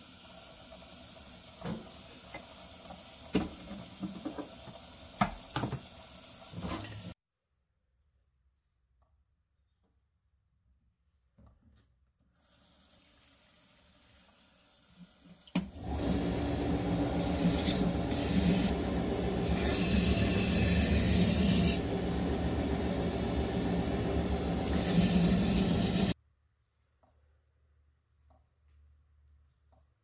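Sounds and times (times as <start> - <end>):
running tap water: 0.0 - 7.2, 12.4 - 26.2
whetstone motor running: 15.8 - 26.1.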